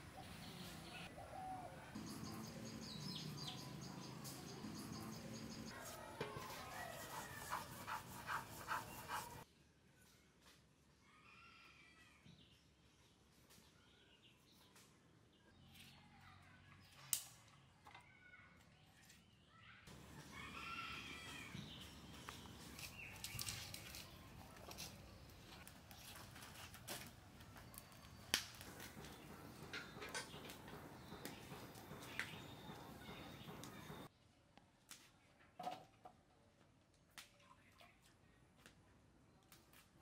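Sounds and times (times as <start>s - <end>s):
chickens calling: 0.0s - 9.4s.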